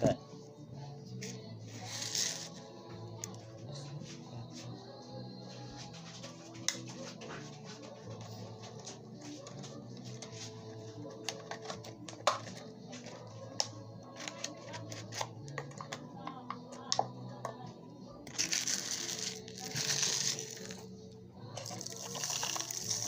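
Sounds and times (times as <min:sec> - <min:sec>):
background music: 0:00.0 - 0:23.0
plastic bottle crinkling: 0:18.3 - 0:20.8, 0:21.6 - 0:23.0
sand pouring into bottle: 0:21.7 - 0:23.0.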